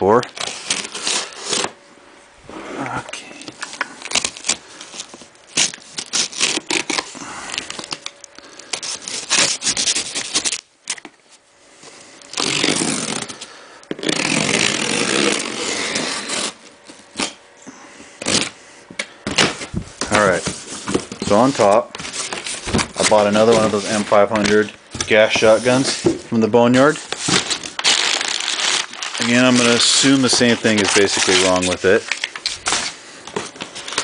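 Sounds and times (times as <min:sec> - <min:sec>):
cardboard scraping and rustling: 0:19.4 - 0:34.0.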